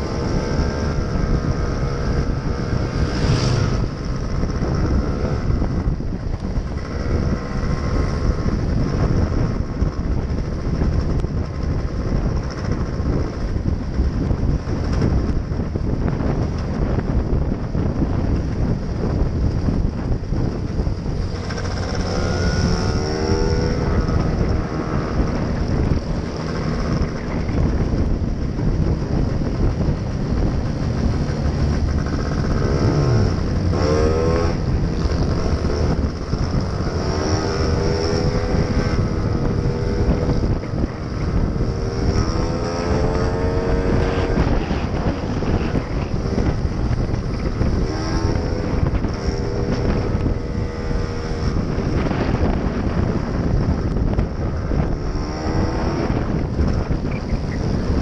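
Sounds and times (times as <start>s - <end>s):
wind buffeting microphone: 0.0s - 58.0s
scooter engine accelerating: 19.6s - 58.0s.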